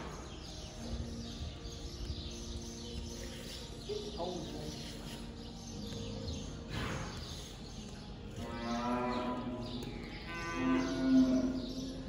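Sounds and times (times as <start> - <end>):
cattle mooing: 10.3 - 11.7.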